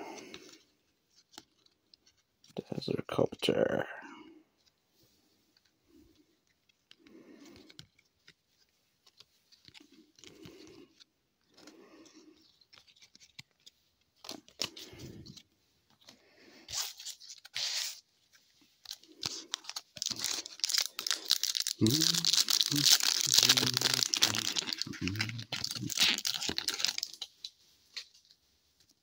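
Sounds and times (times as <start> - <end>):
trading cards shuffling: 6.5 - 29.0
plastic wrapper crinkling and tearing: 12.4 - 15.4, 18.7 - 28.3.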